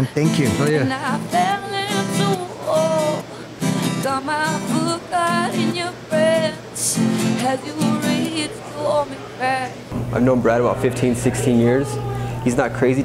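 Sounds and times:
strummed acoustic guitar: 0:00.0 - 0:09.7
woman singing: 0:00.7 - 0:09.9.

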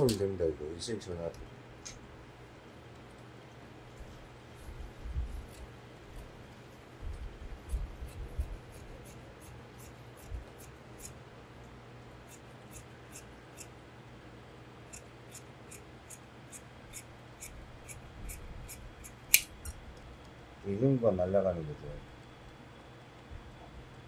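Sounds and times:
shears snipping cloth: 0:03.0 - 0:11.2, 0:12.2 - 0:13.8, 0:14.9 - 0:19.8
sharp click: 0:19.3 - 0:19.8.

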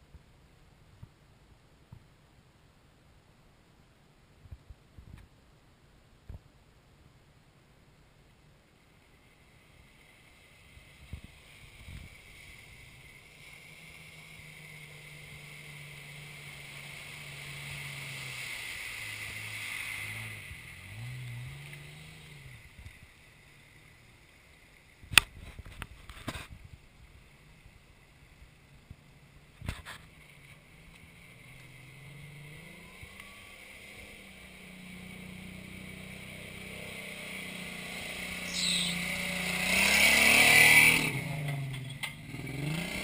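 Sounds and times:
water hissing: 0:09.4 - 0:22.6
vehicle engine passing through water: 0:10.0 - 0:24.0, 0:30.6 - 0:43.0.

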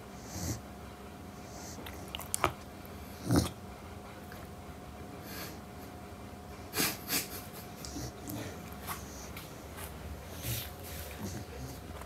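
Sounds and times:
puppy grunting: 0:01.8 - 0:03.6, 0:10.4 - 0:12.0.

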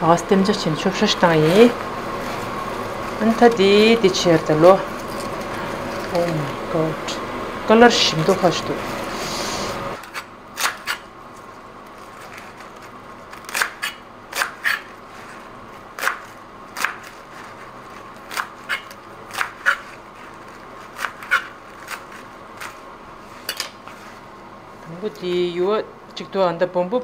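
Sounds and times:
knife chopping on cutting board: 0:16.0 - 0:17.1.

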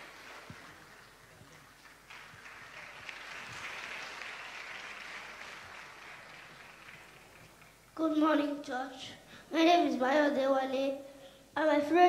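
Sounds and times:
faint audience applause: 0:00.0 - 0:08.0.

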